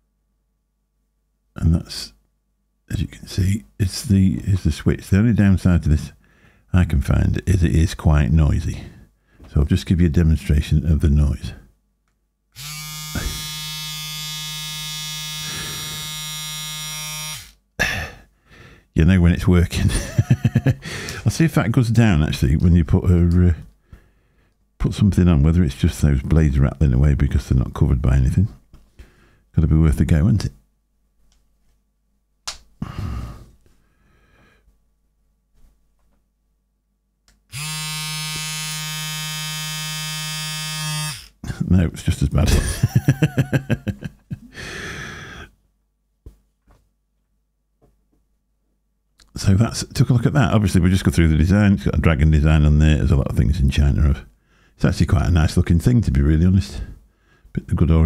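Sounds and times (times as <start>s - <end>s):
hair trimmer buzzing: 12.6s - 17.6s, 37.5s - 41.4s
click: 37.2s - 37.4s.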